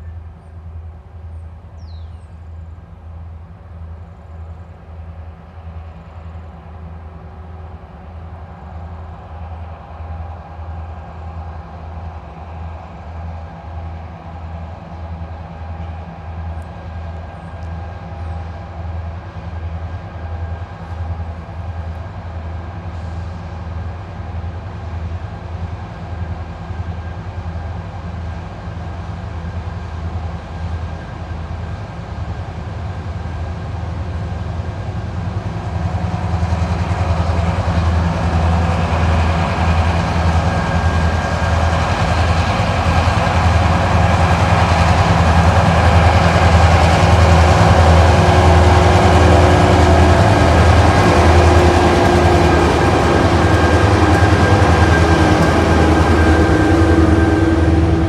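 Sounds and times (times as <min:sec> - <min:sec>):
diesel locomotive engine throb: 0:00.0 - 0:58.0
steady engine tones: 0:36.8 - 0:58.0.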